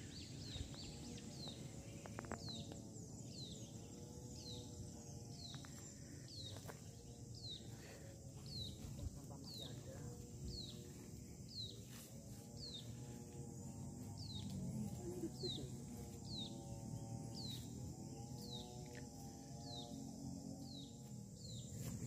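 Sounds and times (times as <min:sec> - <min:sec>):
bird chirping: 0:00.0 - 0:07.8, 0:14.2 - 0:18.8
faint outdoor background noise: 0:00.0 - 0:22.0.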